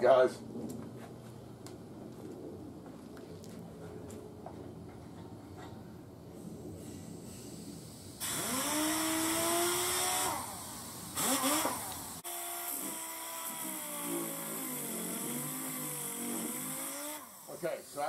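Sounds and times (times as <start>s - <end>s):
air sander whining: 8.2s - 18.0s.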